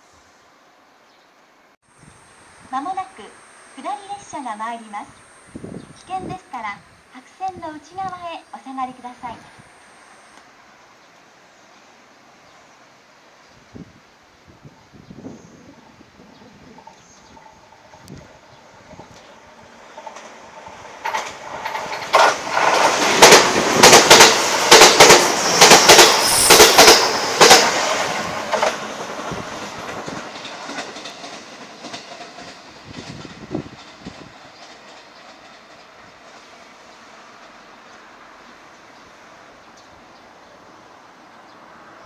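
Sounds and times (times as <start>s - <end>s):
electric train passing: 0.4s - 42.0s
wheel clacks over rail joints: 19.9s - 27.7s.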